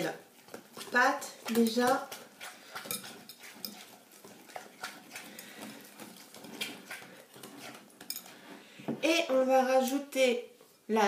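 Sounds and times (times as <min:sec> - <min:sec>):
whisk scraping glass bowl: 0:00.0 - 0:08.8
dough squelching: 0:00.0 - 0:09.9.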